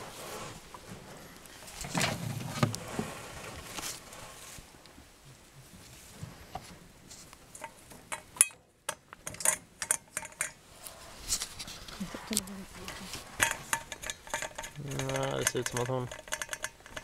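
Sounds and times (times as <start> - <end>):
rabbits scuffling in straw: 0.0 - 4.8, 5.6 - 7.4, 10.7 - 13.4.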